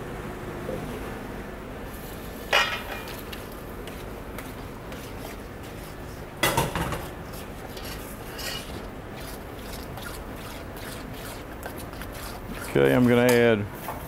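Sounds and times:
kitchen hum: 0.0 - 14.0
metal spoon scraping a bowl: 6.6 - 14.0.

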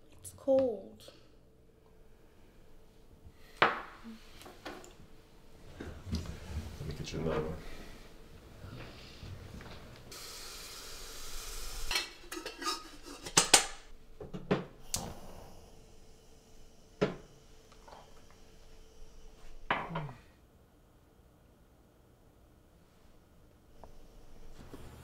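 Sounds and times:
kettle hiss: 7.6 - 20.3.

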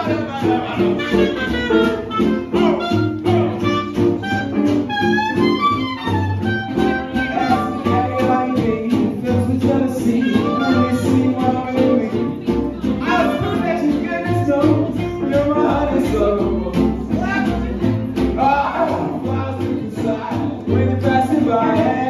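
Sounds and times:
jazz band playing swing: 0.0 - 22.0
walking upright bass: 0.0 - 22.0
horn sliding melody: 0.7 - 8.1.

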